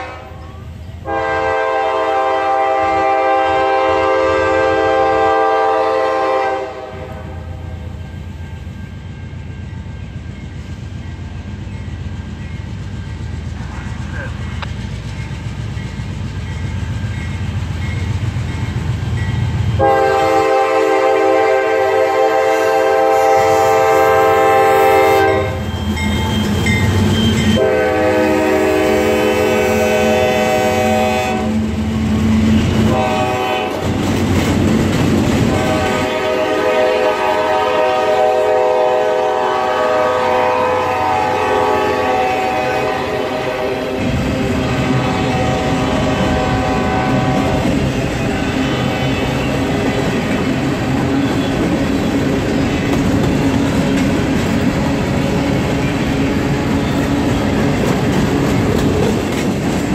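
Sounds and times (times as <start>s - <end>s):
train air horn blasts: 0.0s - 7.6s, 19.8s - 25.7s, 27.3s - 31.8s, 32.5s - 33.9s, 35.4s - 50.3s
train wheels clattering over rail joints: 33.7s - 36.1s, 50.1s - 59.9s.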